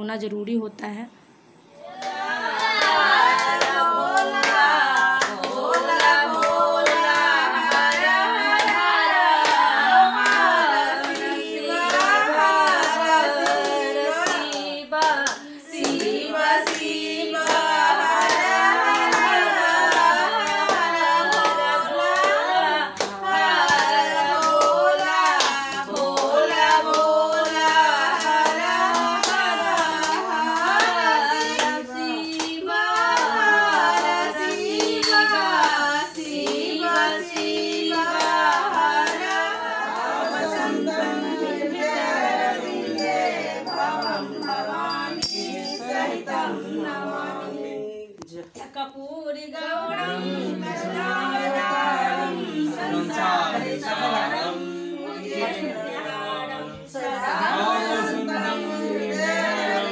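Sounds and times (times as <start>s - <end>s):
women singing together: 1.6s - 59.9s
hands clapping: 2.0s - 46.2s.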